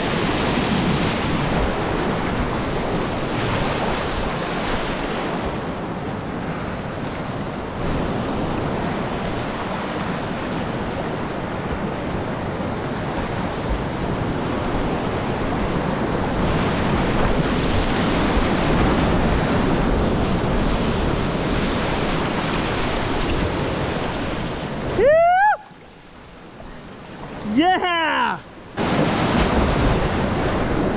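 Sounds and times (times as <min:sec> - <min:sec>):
whitewater rapids rushing: 0:07.8 - 0:26.6, 0:27.2 - 0:30.9.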